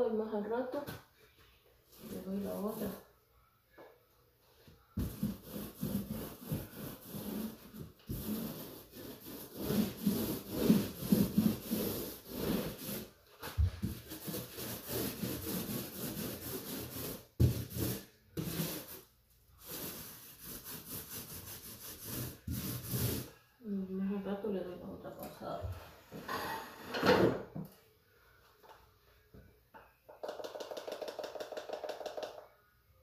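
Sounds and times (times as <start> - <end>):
paint roller rubbing on wall: 1.9 - 3.0, 4.8 - 23.4.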